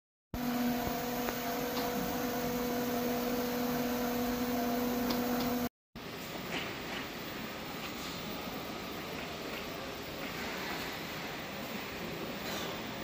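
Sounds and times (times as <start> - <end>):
electric pump humming: 0.4 - 5.7
machine-room noise: 0.4 - 13.0.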